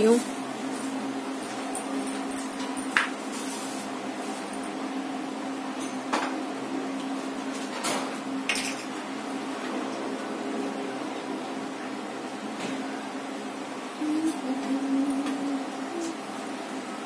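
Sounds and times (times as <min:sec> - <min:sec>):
steady low hum: 0:00.0 - 0:17.0
dishes and utensils clinking: 0:07.4 - 0:09.0.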